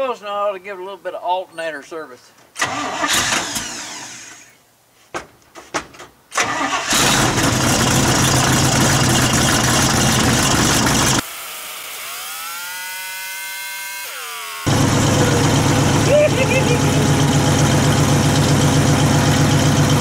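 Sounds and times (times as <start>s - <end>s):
truck engine cranking and running: 2.6s - 4.5s, 6.3s - 11.2s, 14.7s - 20.0s
whine rising in pitch: 12.2s - 20.0s.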